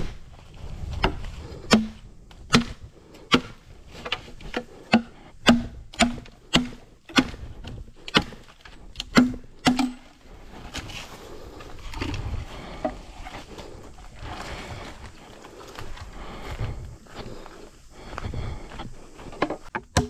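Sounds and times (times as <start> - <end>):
blade chopping wood: 1.0 - 10.1, 19.6 - 20.0.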